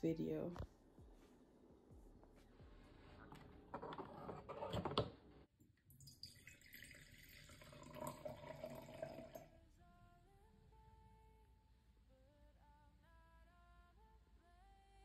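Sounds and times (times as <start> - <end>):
wine pouring into a glass: 6.0 - 9.5.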